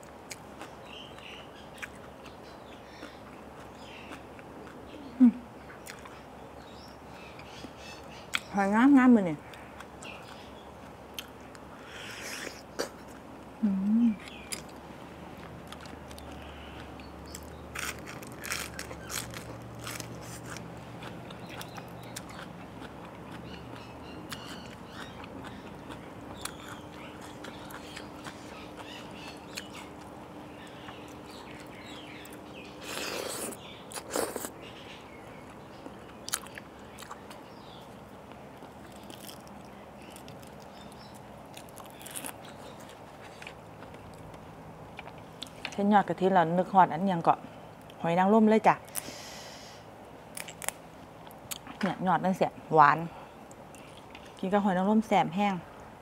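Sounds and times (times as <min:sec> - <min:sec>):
crunching and chewing cabbage: 0:00.0 - 0:05.2, 0:09.5 - 0:13.4, 0:14.2 - 0:45.7, 0:50.3 - 0:51.8.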